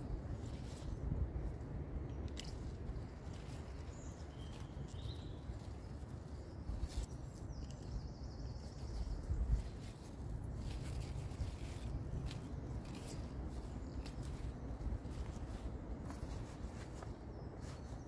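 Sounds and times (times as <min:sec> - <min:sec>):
stems snapping: 0:01.9 - 0:05.7, 0:06.7 - 0:08.1, 0:10.5 - 0:17.1.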